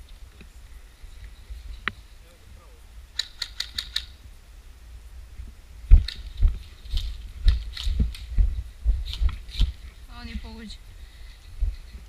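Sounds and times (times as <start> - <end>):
footsteps on rough ground: 5.4 - 10.7.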